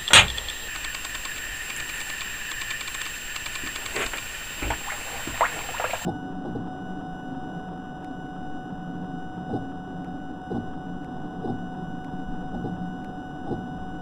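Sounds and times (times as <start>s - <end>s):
faint ticking: 0.0s - 6.1s
low mechanical hum: 0.0s - 14.0s.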